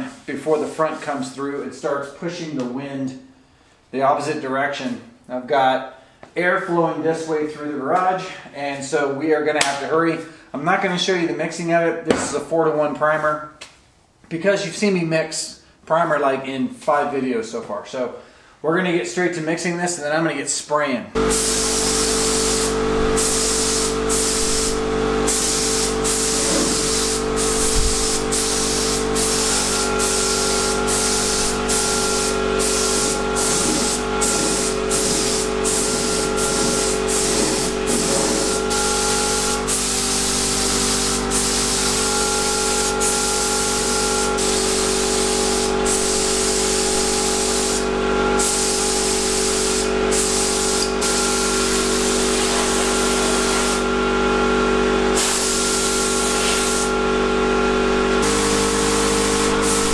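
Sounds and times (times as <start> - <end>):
paint spray gun hissing: 21.2 - 53.9, 55.1 - 56.9, 58.2 - 59.9.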